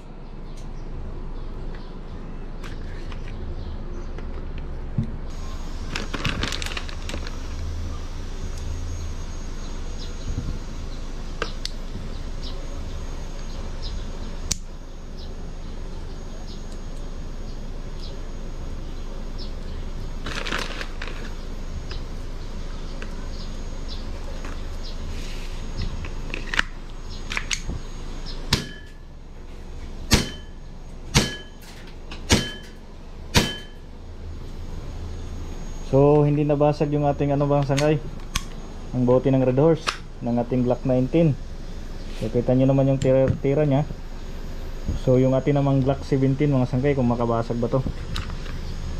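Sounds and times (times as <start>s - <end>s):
steady low hum: 0.0s - 48.9s
plastic bag crinkling: 5.8s - 7.4s, 20.2s - 21.4s
airsoft pistol shots: 28.5s - 28.9s, 30.1s - 30.5s, 31.1s - 31.5s, 32.3s - 32.7s, 33.3s - 33.8s.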